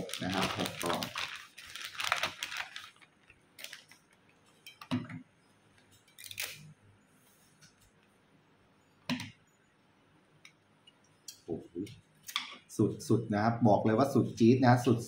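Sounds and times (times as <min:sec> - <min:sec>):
plastic rustling: 0:00.0 - 0:04.6.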